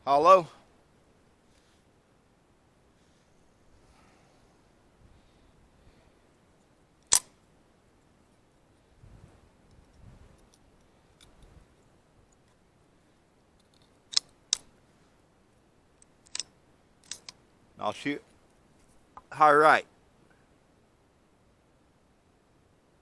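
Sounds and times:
rifle magazine clicks: 7.0s - 7.3s, 16.3s - 17.4s
handling rustle: 18.2s - 19.3s.

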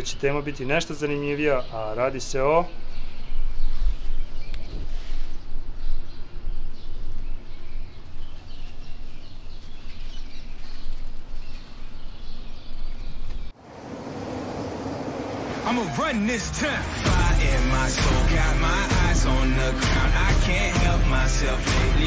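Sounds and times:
birds chirping faintly: 0.0s - 17.0s.

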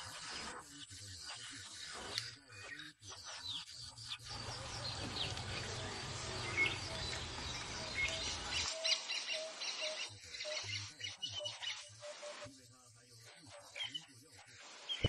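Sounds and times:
wild birds chirping: 0.0s - 15.0s
low rumble and hiss: 4.3s - 8.6s.

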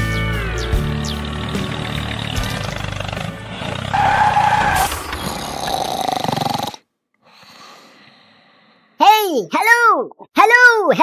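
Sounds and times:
loud roar: 1.2s - 6.8s.

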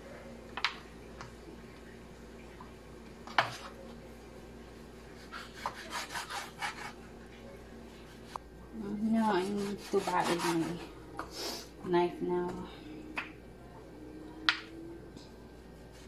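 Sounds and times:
knife sawing through meat: 5.3s - 7.0s, 9.4s - 10.8s.

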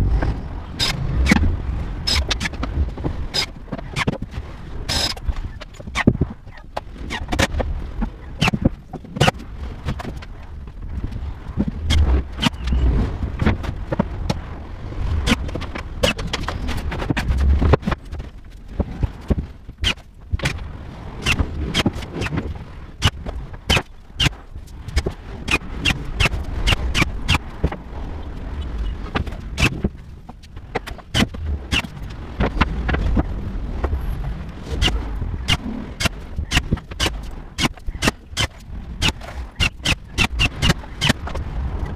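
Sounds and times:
heavy low thumps: 0.0s - 3.3s.

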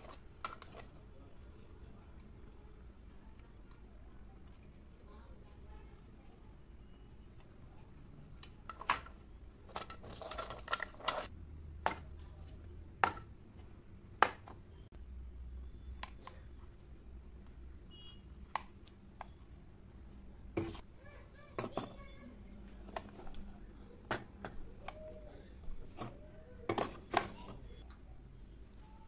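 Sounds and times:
small plastic toys clicking: 8.2s - 12.1s.

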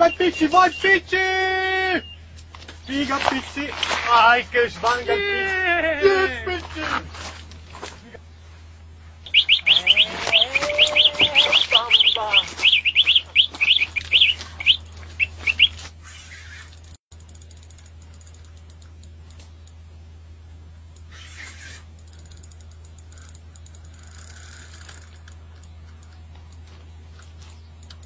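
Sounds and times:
bird chirping: 0.0s - 1.1s, 1.9s - 3.5s, 9.2s - 16.9s, 21.0s - 28.0s.

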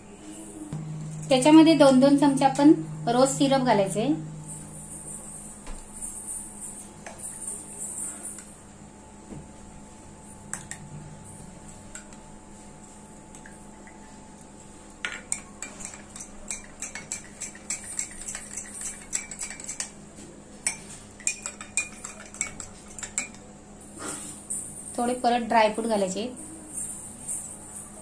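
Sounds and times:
spoon clinking against glass: 14.9s - 20.0s, 20.6s - 23.5s.

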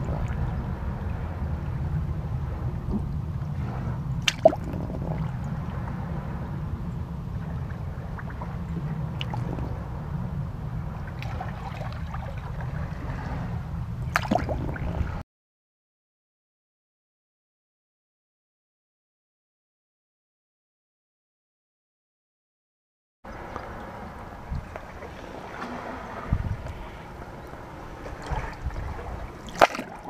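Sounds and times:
low rumble: 0.0s - 15.2s, 23.3s - 30.0s
seawater lapping and dripping: 0.0s - 15.2s, 23.3s - 30.0s
water splashes: 0.0s - 15.2s, 23.3s - 30.0s.

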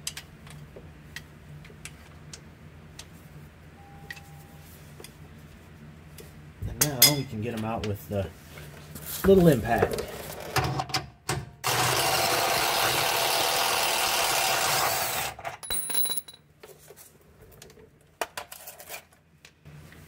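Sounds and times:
impact wrench running: 11.6s - 16.3s.

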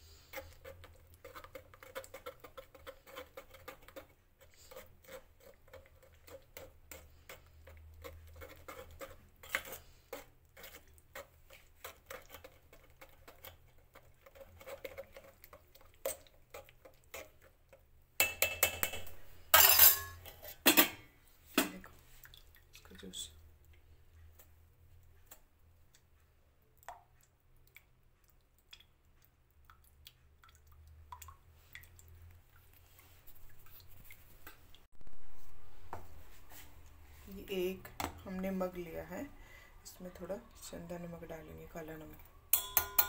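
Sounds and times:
metal spoon scraping a mesh sieve: 8.0s - 12.5s, 18.6s - 21.0s
steel clanking against a pot: 18.2s - 21.8s, 42.5s - 43.0s.

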